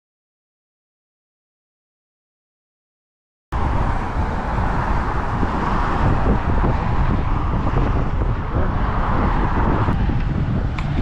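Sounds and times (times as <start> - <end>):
road traffic noise: 3.5 - 11.0
wind buffeting microphone: 3.6 - 11.0.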